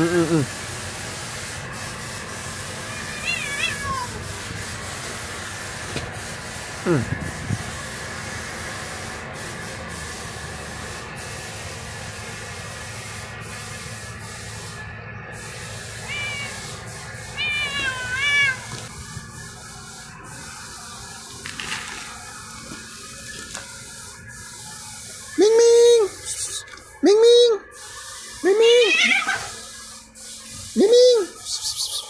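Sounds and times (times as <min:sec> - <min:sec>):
steady hiss: 0:00.0 - 0:27.0, 0:27.6 - 0:32.0
cat meowing: 0:02.9 - 0:04.2, 0:16.0 - 0:16.6, 0:17.4 - 0:18.7, 0:28.6 - 0:29.5.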